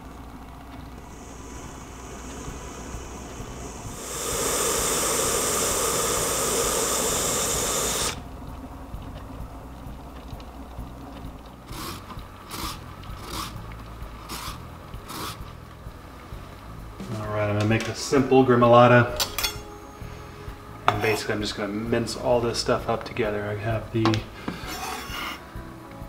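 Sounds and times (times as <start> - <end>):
pressure cooker steam hissing: 1.0 - 8.2.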